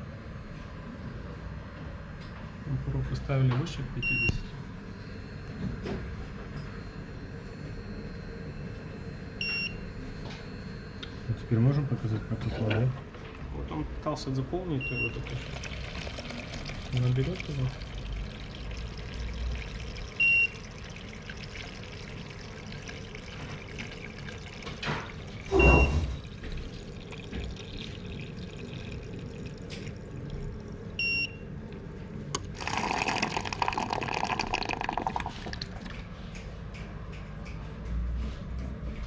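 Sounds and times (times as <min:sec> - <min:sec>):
water running into plastic bucket: 0:14.9 - 0:30.8, 0:32.4 - 0:36.0
short high buzzer beep: 0:25.5 - 0:26.2.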